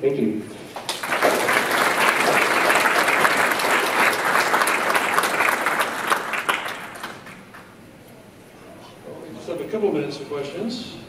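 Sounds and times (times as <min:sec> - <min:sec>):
crowd applauding: 0:00.7 - 0:07.7.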